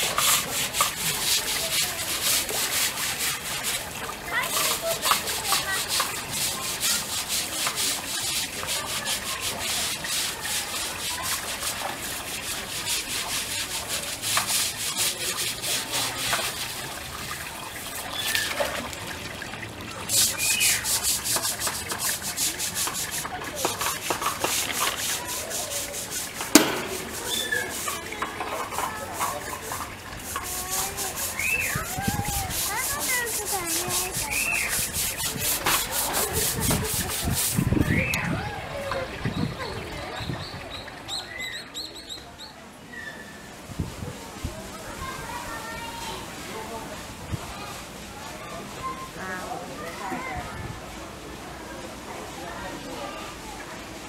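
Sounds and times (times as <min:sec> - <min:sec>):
short high bird calls: 0:27.2 - 0:27.7.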